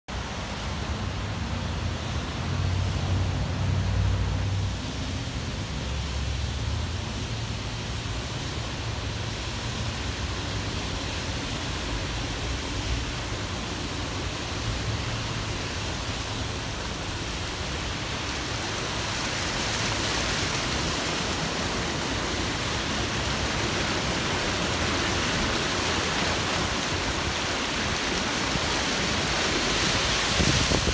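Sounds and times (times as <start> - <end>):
rain and running water hiss: 0.1 - 30.9
tyres through standing water: 10.3 - 30.9.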